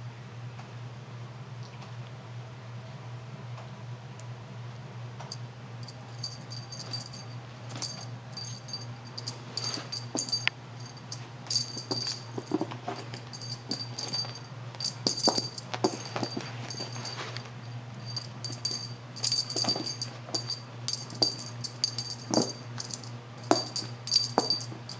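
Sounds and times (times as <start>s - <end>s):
low hum: 5.3s - 24.9s
toy jingling: 5.8s - 24.9s
cat paws thumping and scuffing: 8.7s - 10.4s, 11.1s - 24.9s.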